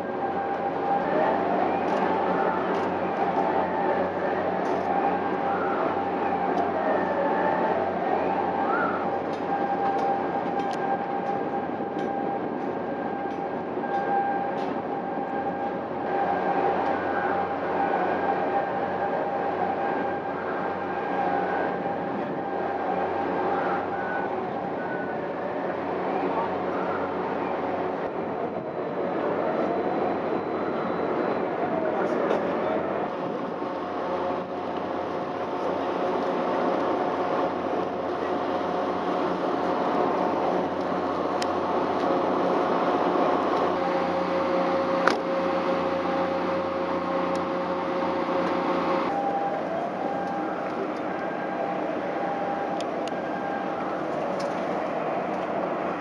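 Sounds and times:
faint steady tones: 0:00.0 - 0:56.0
mechanical drone: 0:00.0 - 0:56.0
ship machinery hum: 0:00.0 - 0:56.0
steady whine: 0:00.0 - 0:56.0.

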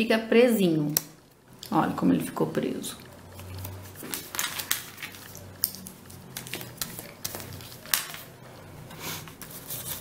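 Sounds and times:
paper rustling and crackling: 0:03.4 - 0:08.4, 0:09.2 - 0:10.0.

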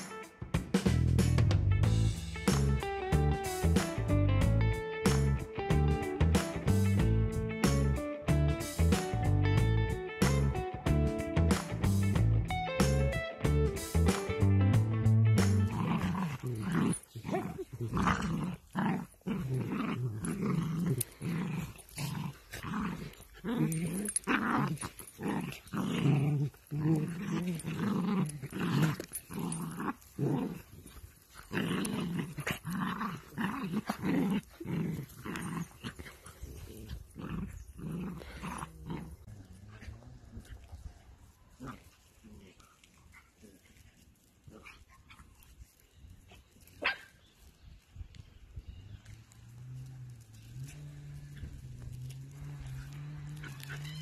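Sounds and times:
dogs play-growling: 0:15.7 - 0:45.6, 0:48.6 - 0:54.0.

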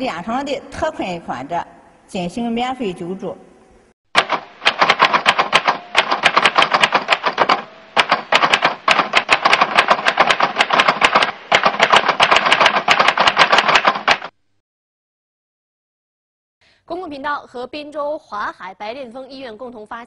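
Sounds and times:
typewriter keys clicking: 0:04.2 - 0:14.3.

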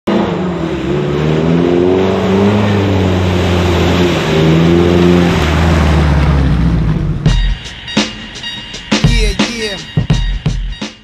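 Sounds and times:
car engine revving: 0:00.1 - 0:07.4
water splashing: 0:00.5 - 0:07.3.

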